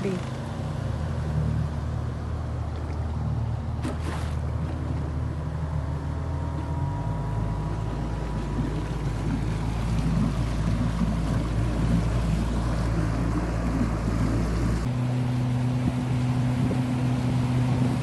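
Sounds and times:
outboard motor running: 0.0 - 18.0
water rushing along hull: 0.0 - 18.0
wind on microphone: 15.7 - 18.0.

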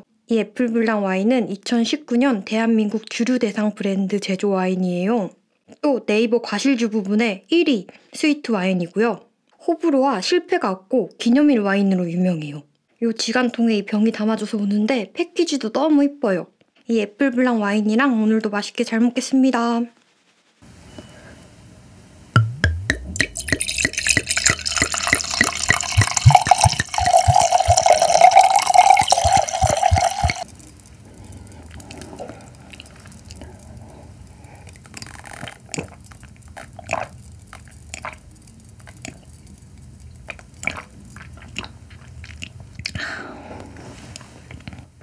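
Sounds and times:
wine pouring into a glass: 22.6 - 41.5
sipping from a glass: 23.0 - 43.0.

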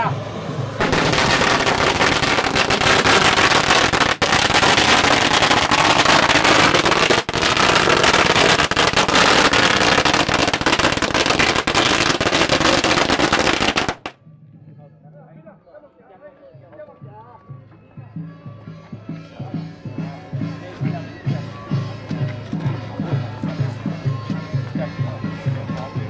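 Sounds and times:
firecrackers banging: 0.7 - 14.2.

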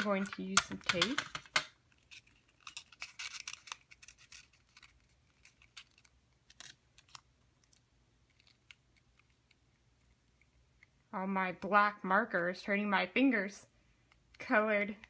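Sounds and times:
paper tube crackling: 2.0 - 10.2.

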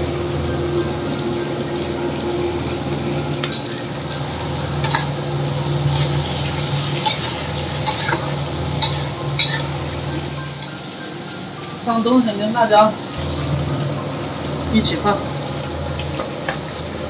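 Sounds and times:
meat sizzling in a wok: 0.0 - 17.0
metal spatula scraping wok: 3.4 - 11.0.

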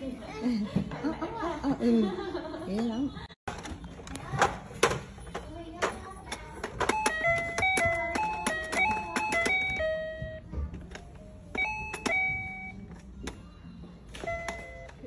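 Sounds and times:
toy piano beeping notes: 6.8 - 10.5, 11.4 - 13.0, 14.1 - 15.0.

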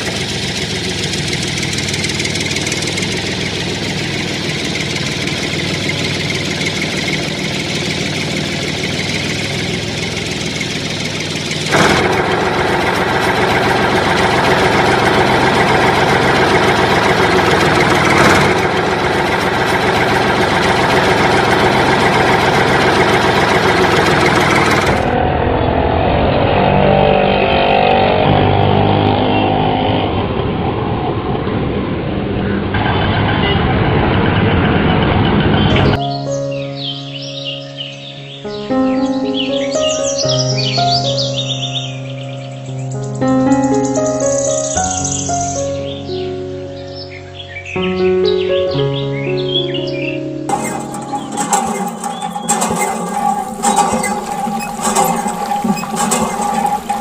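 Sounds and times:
vehicle engine running: 0.0 - 36.1, 50.5 - 57.0.

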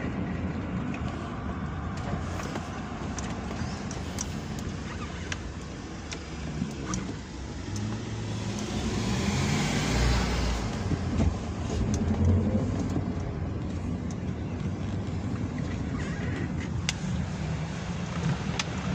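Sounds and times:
car engine and road noise: 0.0 - 18.9.

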